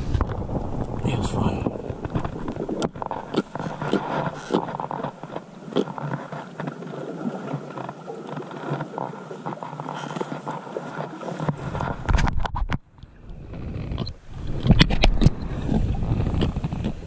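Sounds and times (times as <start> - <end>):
sea water washing against rocks: 0.0 - 17.0
shoes and gear scraping on rock: 2.2 - 12.1.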